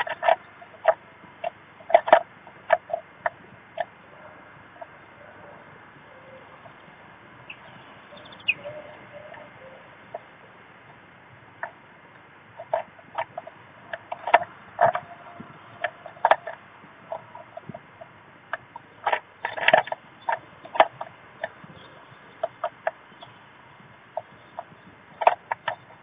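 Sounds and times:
bird tapping on wooden nest box: 12.6 - 17.9, 18.5 - 23.0, 24.2 - 25.9.

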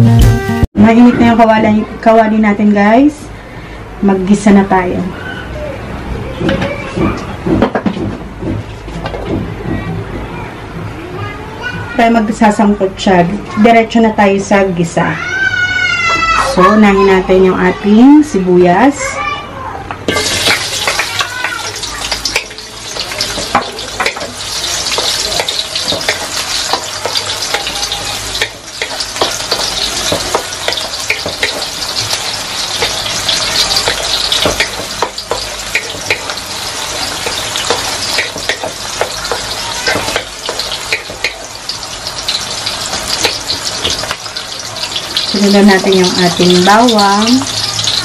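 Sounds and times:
onions sizzling in hot oil: 20.1 - 48.0.

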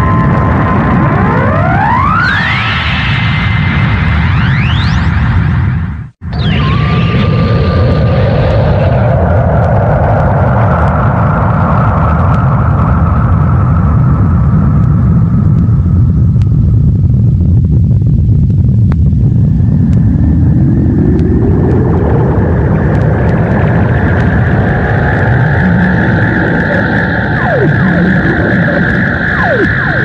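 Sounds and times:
rising tone: 0.0 - 5.5, 6.2 - 9.5, 19.5 - 30.0
deep rumbling energy blast effect: 0.0 - 30.0.

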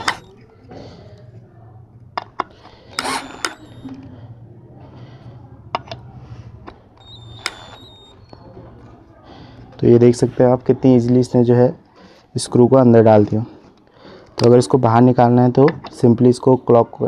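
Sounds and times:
cordless drill humming: 0.0 - 0.4, 2.4 - 4.0, 6.9 - 8.4
sharp clicks and knocks: 2.2 - 4.0, 6.6 - 8.4.

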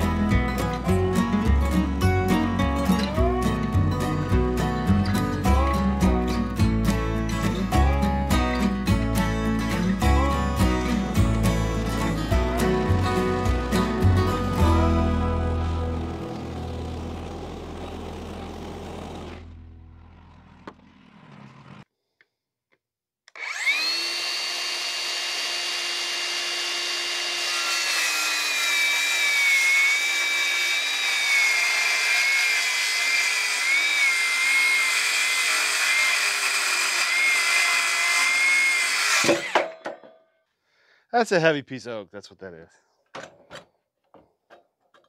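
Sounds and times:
circular saw cutting wood: 0.0 - 21.9, 23.3 - 39.7.

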